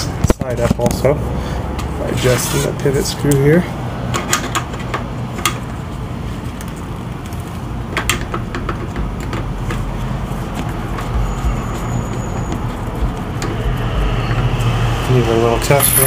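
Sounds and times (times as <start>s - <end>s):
low background rumble: 5.7s - 15.4s.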